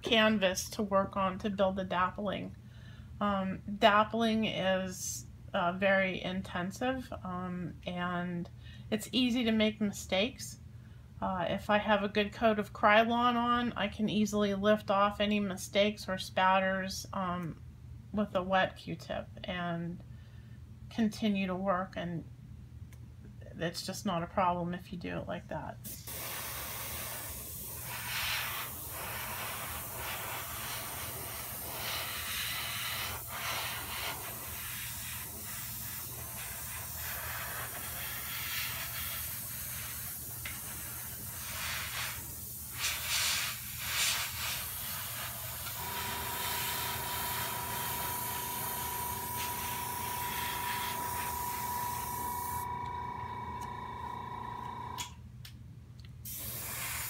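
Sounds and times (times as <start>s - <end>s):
airbrush air hiss: 25.9s - 52.8s, 56.2s - 57.0s
steady humming tone: 45.2s - 55.2s.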